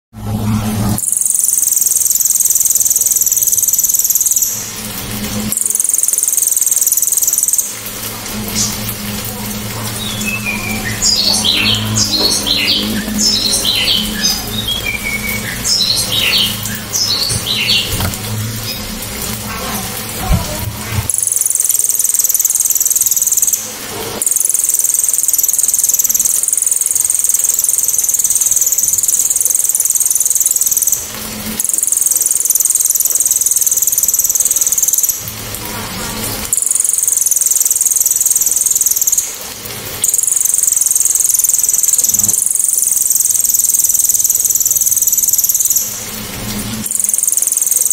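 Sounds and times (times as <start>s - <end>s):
low hum: 0.2s - 5.8s, 7.0s - 21.4s
songbird quick chirps: 10.0s - 18.2s.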